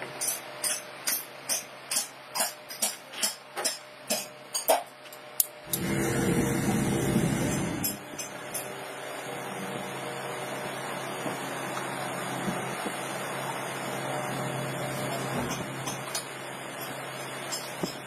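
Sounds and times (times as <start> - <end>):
low rumbling noise: 5.7 - 8.0.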